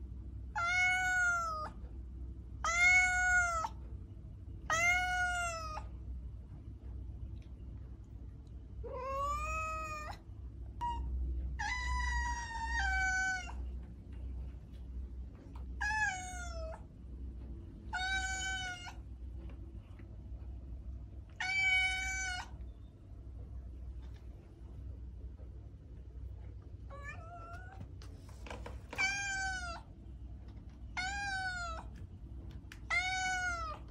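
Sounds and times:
cat meowing: 0.5s - 1.8s, 2.6s - 3.8s, 4.7s - 5.9s, 8.8s - 10.2s, 10.8s - 13.7s, 15.7s - 16.8s, 17.9s - 19.0s, 21.3s - 22.6s, 26.9s - 27.9s, 28.9s - 29.9s, 30.9s - 32.0s, 32.8s - 33.9s.

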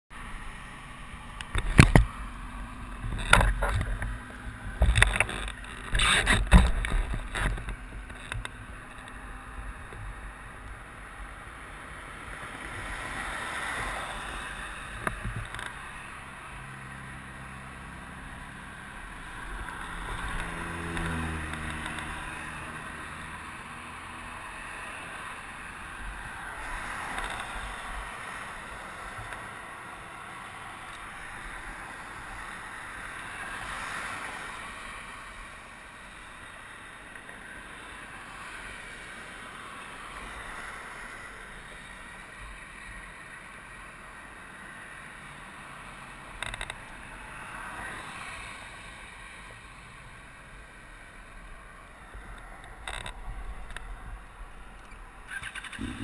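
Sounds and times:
cars passing: 0.1s - 56.0s
highway traffic rumble: 0.1s - 56.0s
camera handling knocks and thumps: 1.4s - 2.2s, 3.0s - 8.6s.

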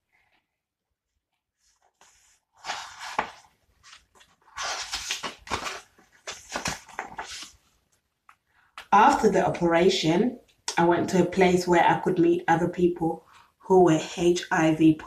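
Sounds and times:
book pages turning: 1.3s - 8.4s.

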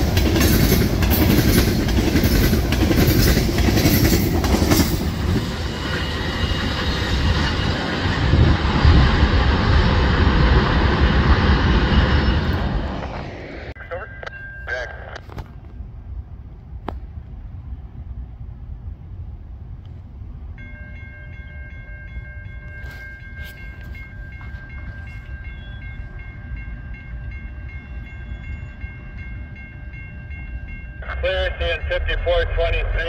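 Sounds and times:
crossing warning bell dinging: 0.0s - 8.5s, 13.8s - 15.8s, 20.5s - 33.0s.

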